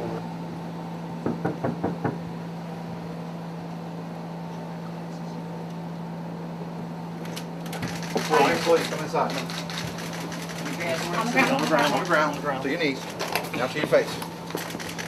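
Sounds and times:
steady low hum: 0:00.0 - 0:15.0
knocks on a door: 0:01.2 - 0:02.2.

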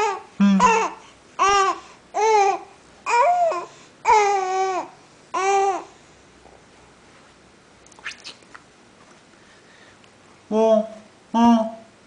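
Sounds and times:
baby cooing: 0:00.0 - 0:05.9.

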